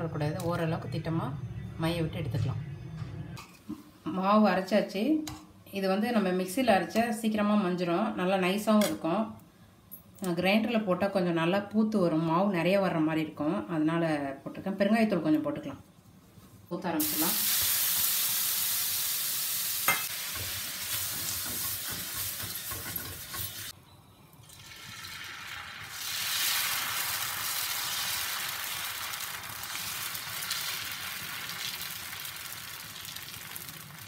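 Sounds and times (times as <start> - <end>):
water sizzling on hot griddle: 17.0 - 23.7, 24.5 - 34.0
batter sizzling on griddle: 17.0 - 23.8, 24.6 - 34.0.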